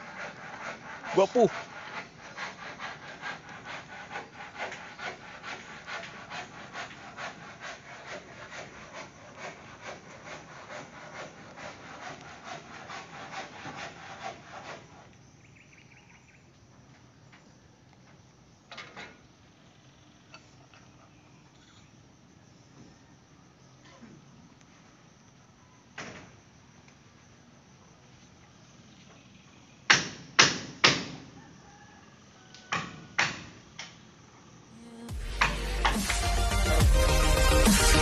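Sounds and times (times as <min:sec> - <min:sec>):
handsaw cutting wood: 0:00.0 - 0:15.1, 0:35.1 - 0:38.0.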